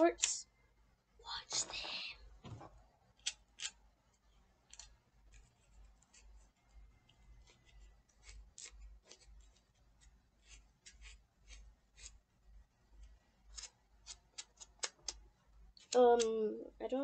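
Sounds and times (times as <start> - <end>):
faint crisp ticks and scratches: 1.3 - 12.2.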